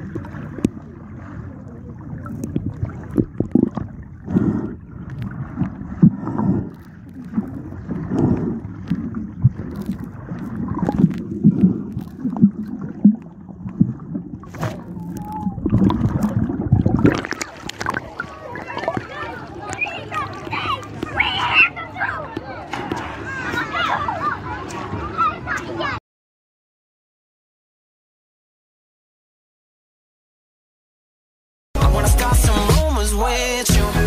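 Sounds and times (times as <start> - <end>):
muffled water sloshing underwater: 0.0 - 26.0.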